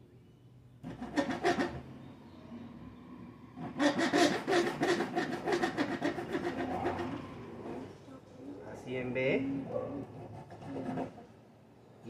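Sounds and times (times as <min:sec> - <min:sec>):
hand saw cutting wood: 0:00.8 - 0:01.8, 0:03.6 - 0:07.9, 0:10.0 - 0:11.3.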